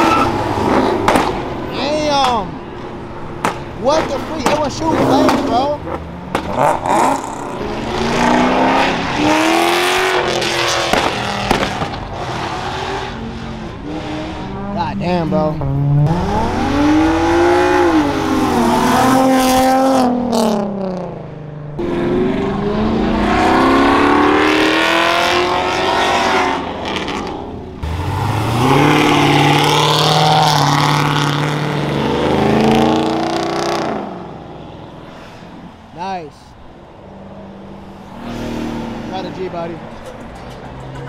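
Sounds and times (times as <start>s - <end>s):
cars accelerating past: 0.0s - 35.8s, 37.0s - 41.0s.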